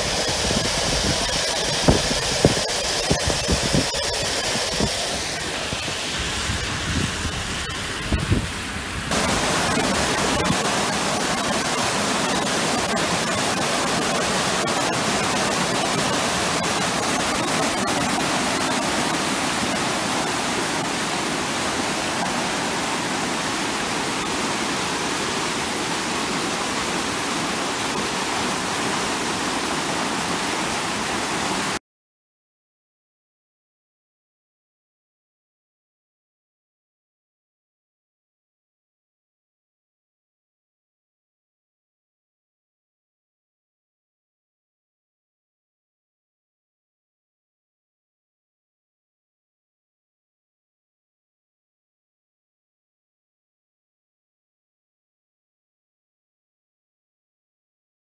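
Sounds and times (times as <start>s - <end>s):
floodwater rushing: 0.0s - 31.8s.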